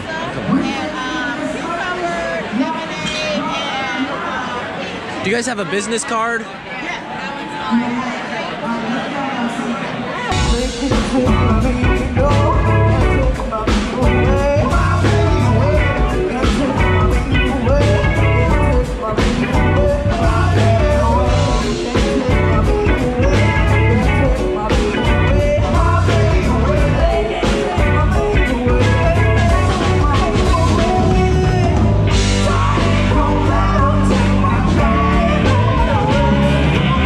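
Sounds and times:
woman singing: 0:07.7 - 0:37.0
bass guitar: 0:10.3 - 0:37.0
drum kit beat: 0:10.3 - 0:37.0
electric guitars: 0:10.3 - 0:37.0.

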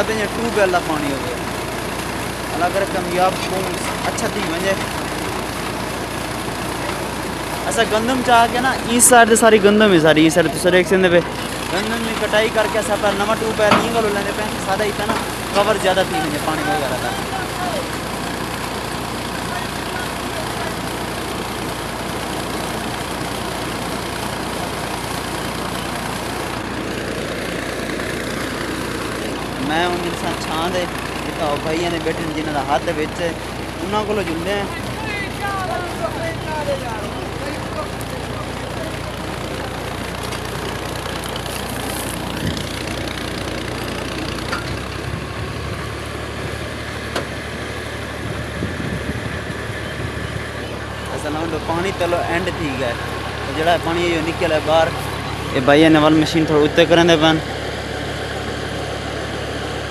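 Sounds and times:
boring machine engine running: 0:00.0 - 0:59.9.

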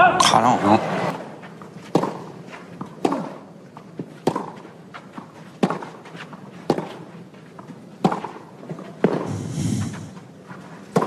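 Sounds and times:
tennis ball hit by racket: 0:04.2 - 0:04.6, 0:08.0 - 0:08.4
burst of hissy noise: 0:09.2 - 0:10.2.

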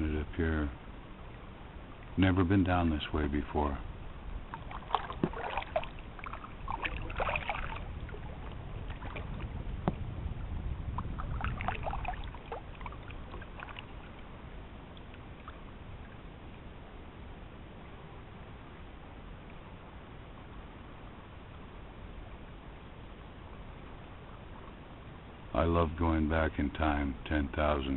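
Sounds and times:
low steady rumble: 0:00.0 - 0:27.9
water splashing off paddle: 0:04.4 - 0:10.1, 0:10.9 - 0:14.3.

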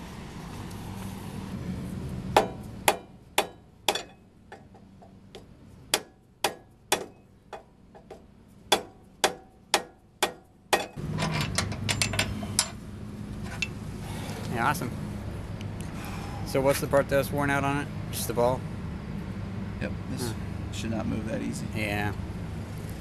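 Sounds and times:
hammer striking brass bar: 0:05.9 - 0:07.2, 0:08.7 - 0:11.0
metal parts rattling: 0:10.8 - 0:12.8.

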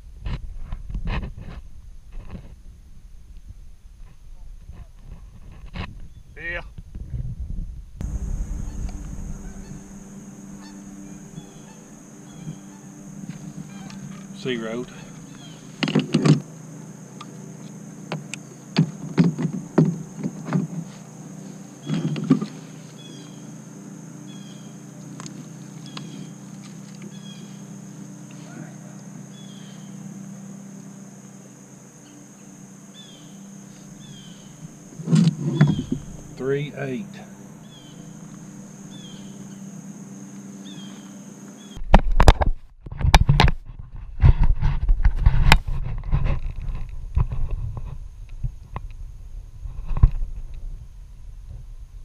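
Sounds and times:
faint outdoor hum: 0:00.0 - 0:52.0
bird chirping: 0:08.1 - 0:16.2, 0:21.5 - 0:30.0, 0:32.0 - 0:41.8
handling knocks and rubbing: 0:18.1 - 0:23.2, 0:34.9 - 0:36.4.

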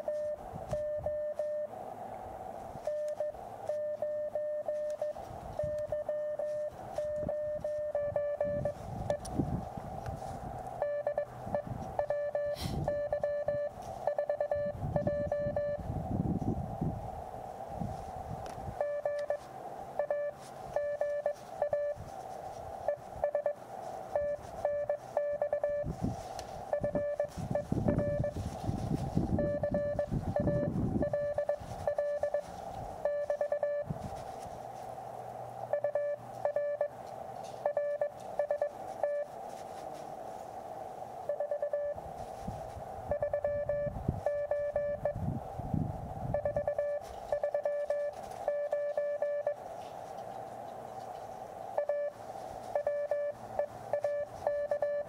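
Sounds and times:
morse code tone: 0:00.0 - 0:01.7, 0:02.8 - 0:09.3, 0:10.8 - 0:15.9, 0:18.8 - 0:19.4, 0:20.0 - 0:22.0, 0:22.8 - 0:26.0, 0:26.7 - 0:28.6, 0:29.2 - 0:33.9, 0:35.7 - 0:37.0, 0:37.6 - 0:39.3, 0:41.3 - 0:42.0, 0:43.1 - 0:45.2, 0:46.3 - 0:49.6, 0:51.8 - 0:55.0
receiver hiss: 0:00.0 - 0:55.0
wind rumble on microphone: 0:00.4 - 0:01.2, 0:06.7 - 0:19.3, 0:24.3 - 0:34.5, 0:41.9 - 0:47.4.

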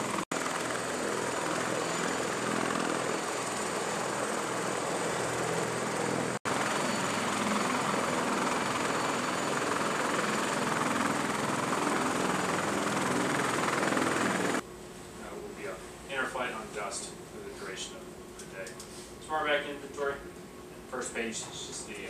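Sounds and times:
helicopter rotor and turbine noise: 0:00.0 - 0:14.6
high turbine whine: 0:00.0 - 0:14.6.

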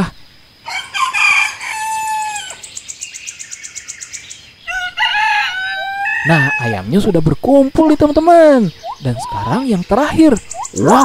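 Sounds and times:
rooster crowing: 0:00.6 - 0:02.6, 0:04.7 - 0:06.9
faint high chirps: 0:07.9 - 0:11.0.

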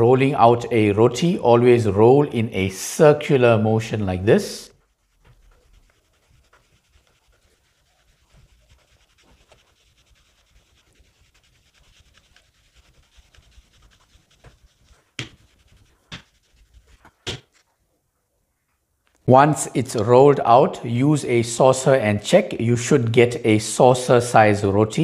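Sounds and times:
rolling pin scraping dough: 0:04.7 - 0:17.6
rolling pin knocking on board: 0:15.2 - 0:15.4.

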